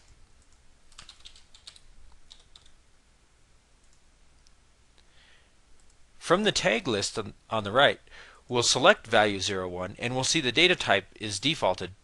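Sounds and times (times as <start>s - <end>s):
faint computer keyboard typing: 0.0s - 2.8s, 3.8s - 4.6s, 5.8s - 6.0s.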